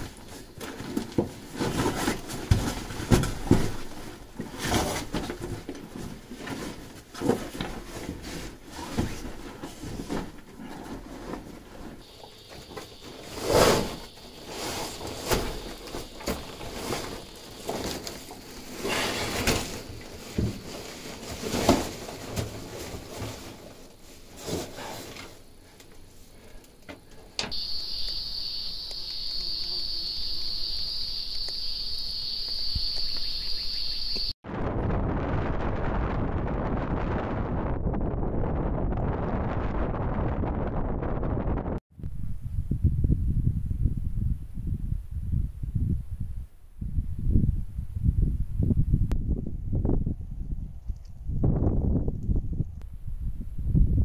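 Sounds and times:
high-pitched insect chorus: 0:12.0 - 0:20.8, 0:27.5 - 0:34.4.

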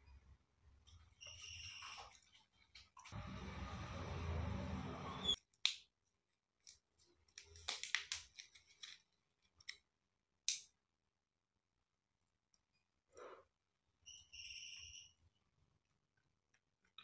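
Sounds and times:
plastic wrapper crinkling: 0:07.3 - 0:09.1.

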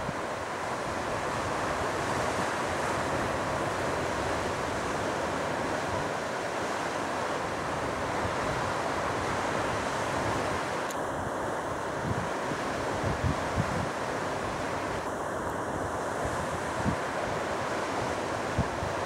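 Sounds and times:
wind on microphone: 0:07.5 - 0:19.0.

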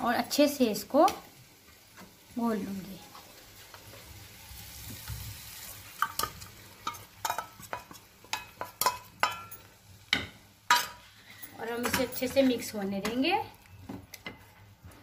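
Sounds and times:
faint sizzle: 0:00.0 - 0:15.0
spoon stirring in steel bowl: 0:06.0 - 0:09.7.

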